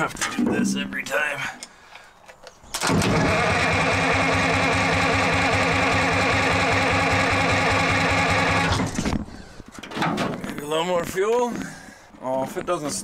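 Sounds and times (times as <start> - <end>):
starter motor cranking diesel engine: 2.8 - 9.0.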